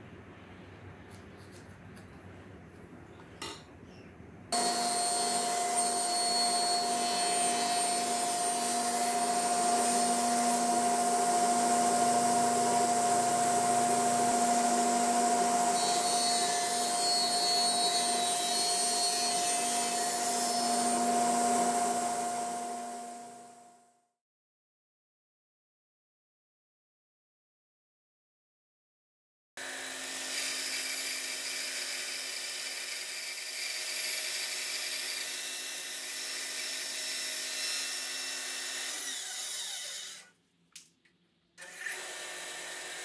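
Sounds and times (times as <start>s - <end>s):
table saw cutting wood: 4.5s - 23.6s, 29.6s - 40.3s, 41.6s - 43.0s.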